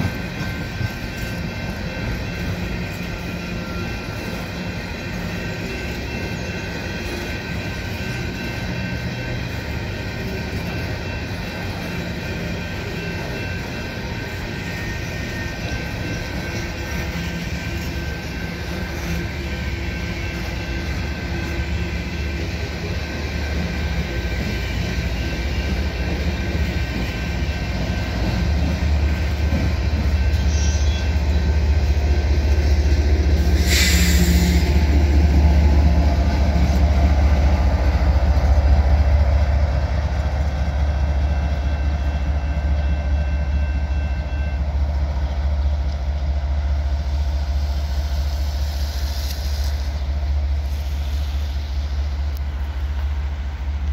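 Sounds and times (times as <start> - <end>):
freight train rolling past: 0.0 - 53.9
brief hiss: 33.6 - 34.7, 47.8 - 50.0, 50.6 - 51.9.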